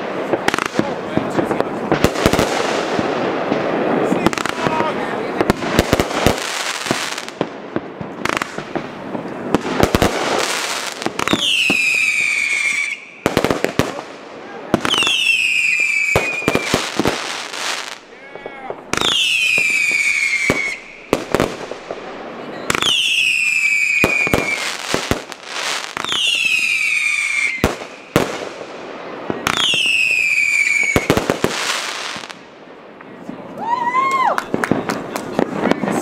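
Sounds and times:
crackling firework bursts: 0.0 - 36.0
firework bangs: 0.0 - 36.0
whistling firework shots: 9.5 - 14.1, 14.7 - 32.4.

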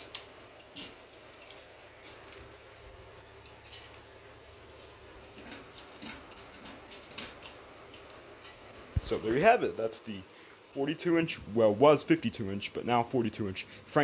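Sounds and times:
metal bead chain rattling: 3.1 - 8.9.

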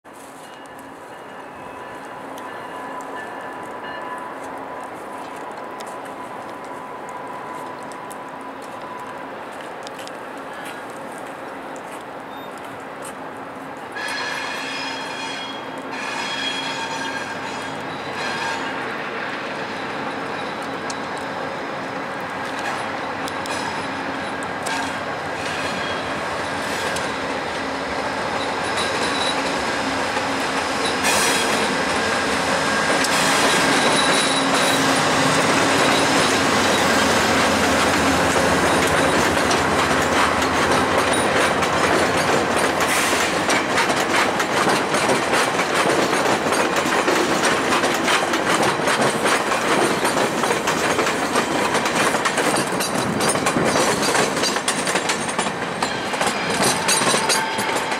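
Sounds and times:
passenger train passing: 0.1 - 57.9
wheels clacking over rail joints: 22.2 - 57.9.

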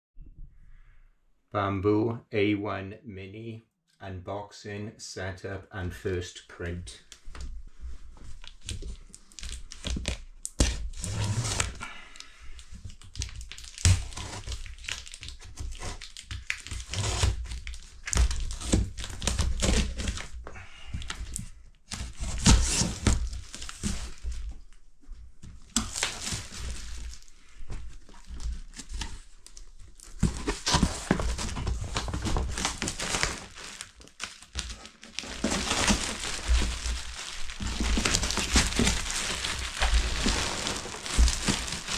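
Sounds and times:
packing tape tearing: 8.4 - 11.8, 13.0 - 20.3, 25.7 - 27.3, 28.7 - 41.9
plastic bag crinkling: 12.6 - 20.2, 25.8 - 41.9
cardboard flaps rustling: 21.9 - 41.9.

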